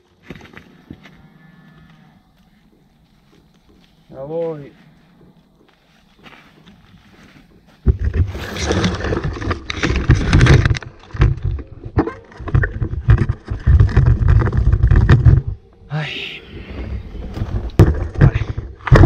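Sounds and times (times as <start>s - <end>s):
mountain bike knocks and rattles: 6.2s - 15.6s, 17.4s - 19.0s.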